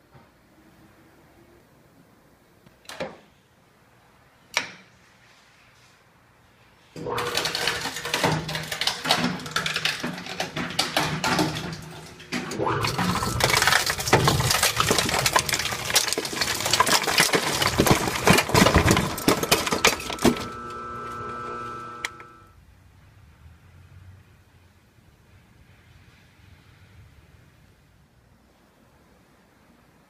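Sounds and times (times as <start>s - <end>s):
shredder crunching hard drive: 7.0s - 22.5s
shredder humming: 7.0s - 22.5s.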